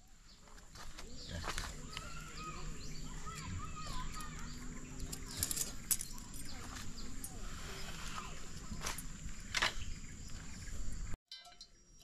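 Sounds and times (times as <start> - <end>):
birds calling: 0.0 - 11.2.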